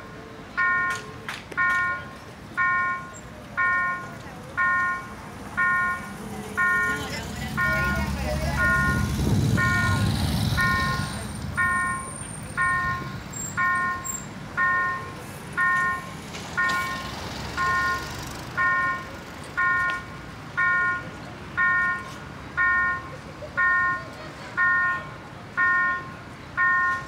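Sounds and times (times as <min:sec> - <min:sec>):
level crossing bell dinging: 0:11.6 - 0:17.0.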